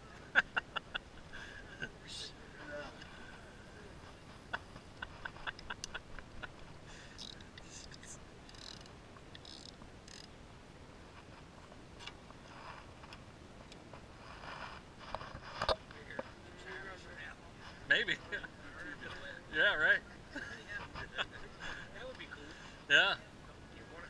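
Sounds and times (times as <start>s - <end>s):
soft rustles: 2.9s - 6.9s, 11.0s - 19.3s
fishing reel clicking: 7.2s - 10.3s.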